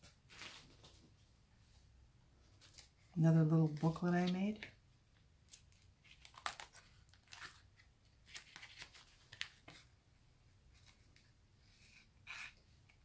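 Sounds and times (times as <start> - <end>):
paper pages rustling: 0.0 - 1.3, 2.5 - 4.7, 5.4 - 9.9.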